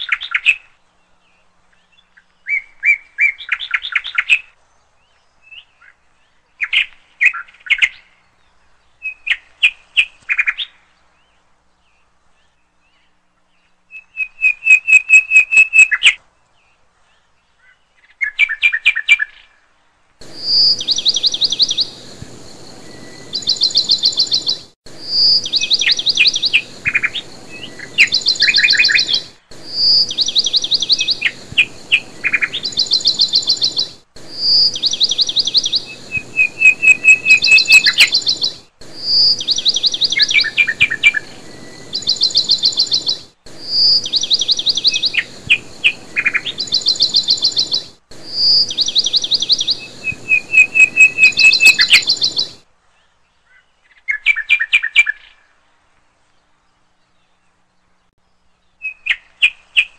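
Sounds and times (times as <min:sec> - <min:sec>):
songbird trilled chirps: 0:00.0 - 0:19.5, 0:20.2 - 0:52.6
faint steady hiss: 0:00.0 - 0:59.9.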